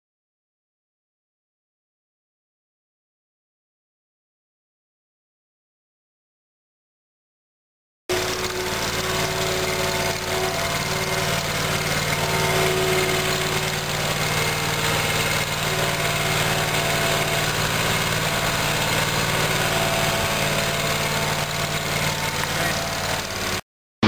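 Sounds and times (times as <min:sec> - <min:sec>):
mower engine running: 0:08.1 - 0:23.6.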